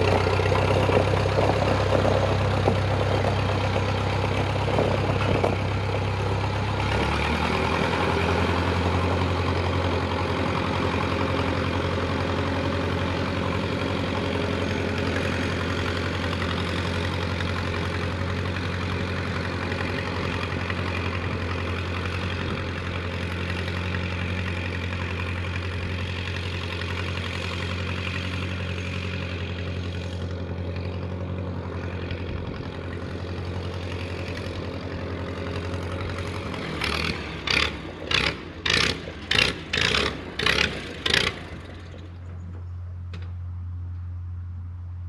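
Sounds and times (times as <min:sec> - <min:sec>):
tractor engine running: 0:00.0 - 0:45.0.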